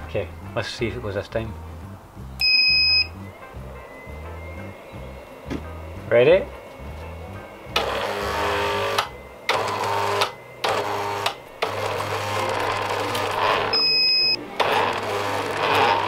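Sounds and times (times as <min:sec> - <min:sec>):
steady hum: 0:00.0 - 0:16.0
high steady beep: 0:02.4 - 0:03.2, 0:13.7 - 0:14.4
electric drill whirring in bursts: 0:07.7 - 0:16.0.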